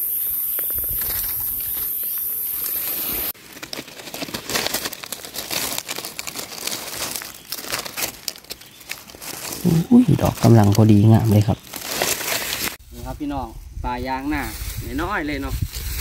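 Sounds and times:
high-pitched hiss: 0.0s - 3.4s
dry leaves crackling and rustling: 0.5s - 13.3s, 14.0s - 16.0s.

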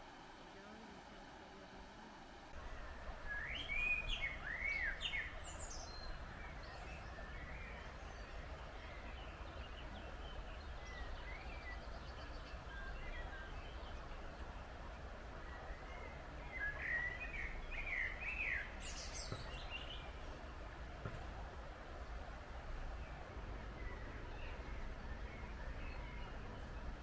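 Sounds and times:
small birds chirping: 2.8s - 27.0s
steady low rumble: 18.6s - 27.0s.

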